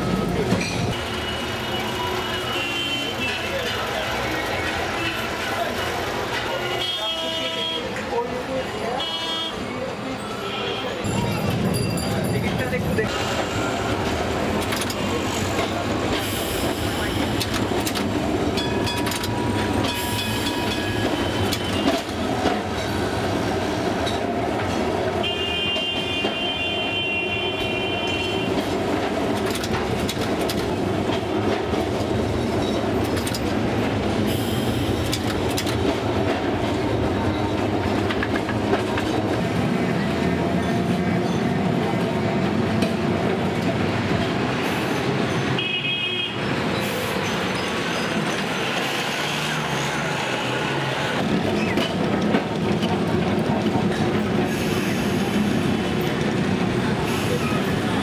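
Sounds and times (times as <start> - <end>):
tram wheels rumbling on rails: 0.0 - 58.0
vehicle horn: 25.2 - 28.5.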